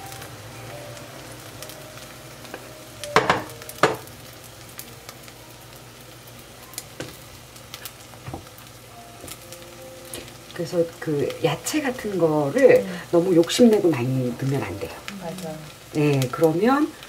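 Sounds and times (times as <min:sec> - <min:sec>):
egg sizzling in frying pan: 0:00.0 - 0:17.0
spatula knocking on pan: 0:03.2 - 0:04.1.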